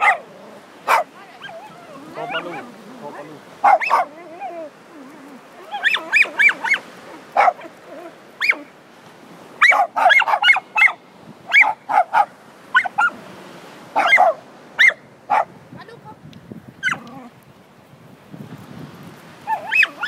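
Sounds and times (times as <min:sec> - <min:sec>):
dog yipping: 0:00.0 - 0:00.3, 0:00.9 - 0:02.7, 0:03.6 - 0:06.8, 0:07.4 - 0:08.7, 0:09.6 - 0:13.2, 0:14.0 - 0:15.5, 0:16.8 - 0:17.2, 0:19.5 - 0:20.0.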